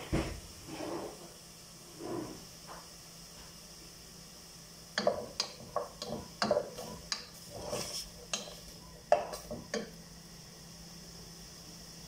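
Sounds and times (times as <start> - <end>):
wooden spatula scraping metal pot: 5.0 - 9.7.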